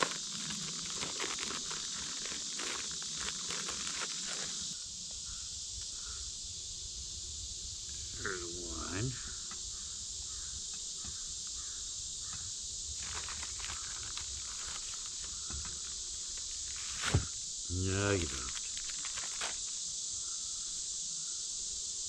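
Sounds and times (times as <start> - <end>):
high insect drone: 0.0 - 22.0
short voice-like call: 17.7 - 18.6.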